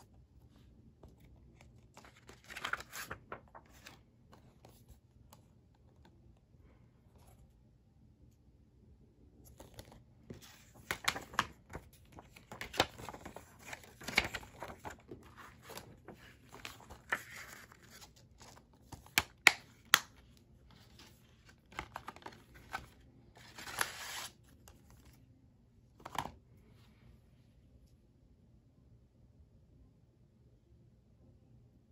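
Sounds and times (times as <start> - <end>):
paper rustling: 0.3 - 6.1, 9.4 - 25.2.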